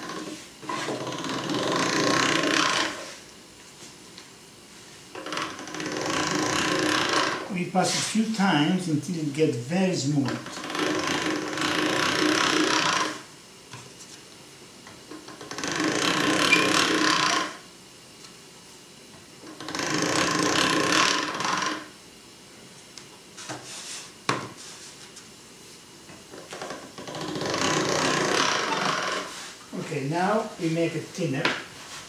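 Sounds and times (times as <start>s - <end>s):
hand-cranked pasta machine running: 0.0s - 3.1s, 5.2s - 7.6s, 10.2s - 13.2s, 15.2s - 17.6s, 19.4s - 21.9s, 26.4s - 29.3s.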